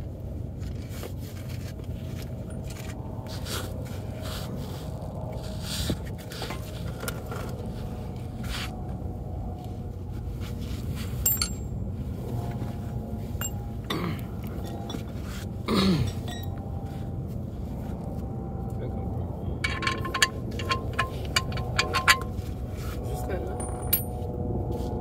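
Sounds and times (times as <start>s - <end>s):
steady low hum: 0.0s - 25.0s
metal tools clinking and scraping: 11.2s - 11.8s, 13.4s - 13.7s, 14.4s - 15.4s, 16.0s - 16.6s, 19.6s - 22.6s, 23.6s - 24.2s.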